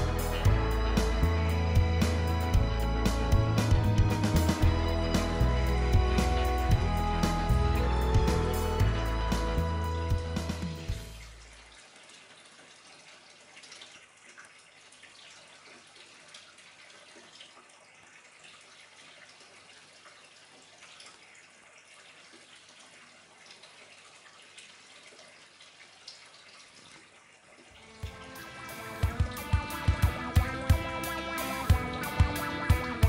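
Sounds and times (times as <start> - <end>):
water splashing into pond: 10.8 - 33.0.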